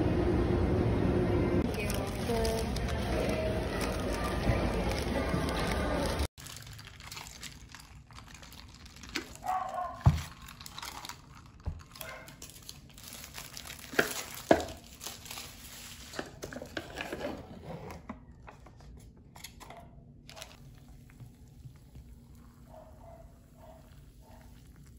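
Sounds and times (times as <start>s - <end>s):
packaging crinkling: 1.7s - 17.2s.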